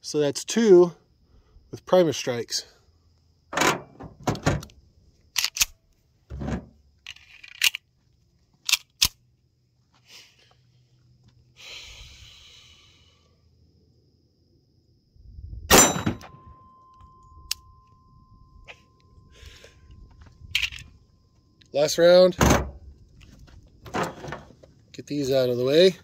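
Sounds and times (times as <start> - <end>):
pistol clicks and clacks: 5.3 - 5.8, 7.1 - 7.9, 8.6 - 9.2
loud pistol shot: 15.7 - 16.2.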